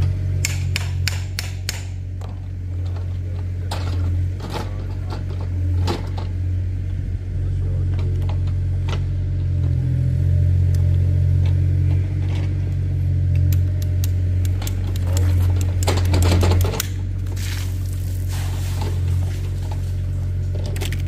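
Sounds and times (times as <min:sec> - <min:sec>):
engine idling: 0:00.0 - 0:21.0
scraping rustle: 0:17.3 - 0:20.5.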